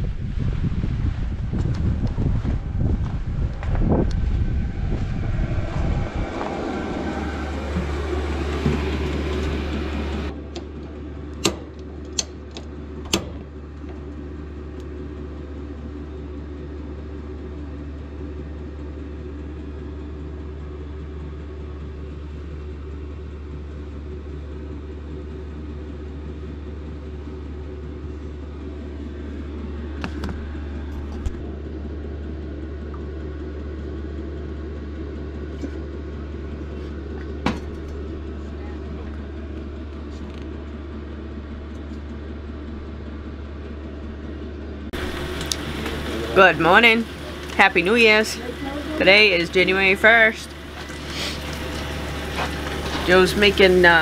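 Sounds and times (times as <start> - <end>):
rushing noise: 0.0 - 10.4
motor humming: 1.6 - 16.3, 26.2 - 54.0.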